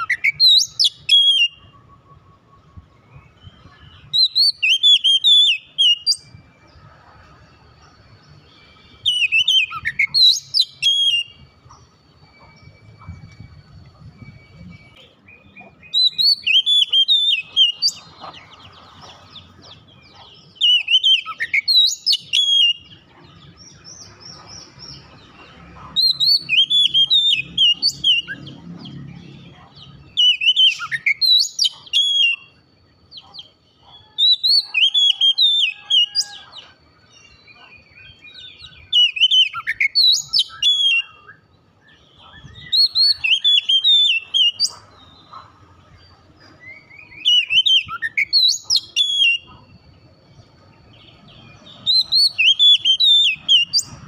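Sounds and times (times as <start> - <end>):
bird singing whistled phrases: 0.0 - 6.4, 8.5 - 18.1, 20.2 - 23.1, 26.0 - 32.6, 33.3 - 36.6, 37.4 - 45.4, 46.6 - 49.7, 51.4 - 54.0.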